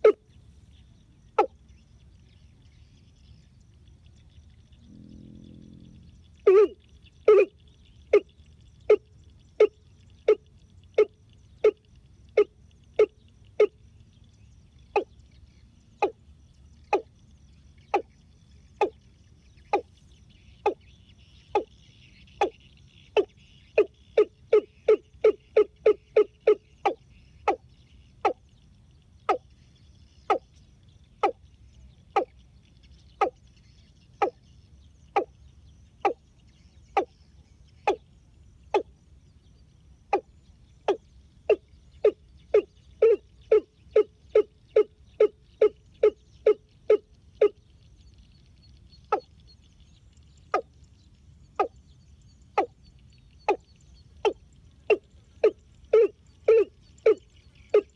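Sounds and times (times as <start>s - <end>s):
bird calling low notes: 4.6s - 13.8s, 40.0s - 49.8s, 52.4s - 57.9s.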